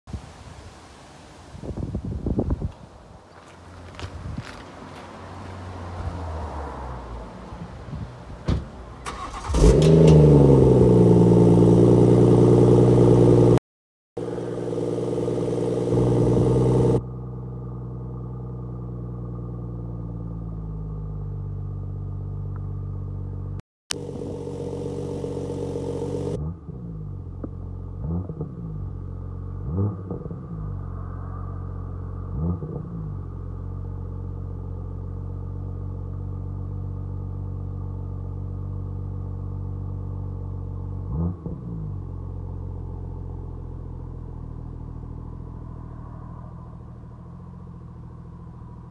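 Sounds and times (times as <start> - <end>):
car engine starting and idling: 8.3 - 13.6, 14.2 - 30.2
engine throttle blips: 23.9 - 27.6.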